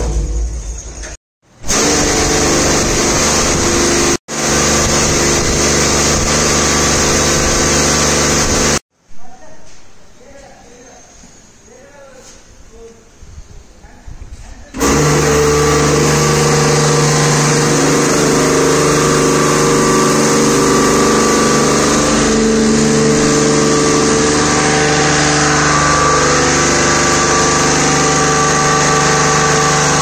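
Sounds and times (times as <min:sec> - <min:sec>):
pump humming: 0:14.8 - 0:30.0.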